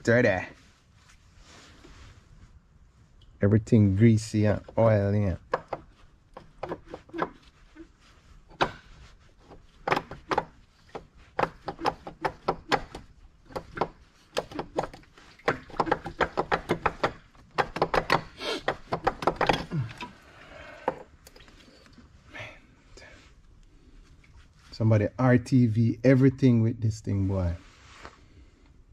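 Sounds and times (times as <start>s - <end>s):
water pump knocking against engine: 11.4s - 19.5s.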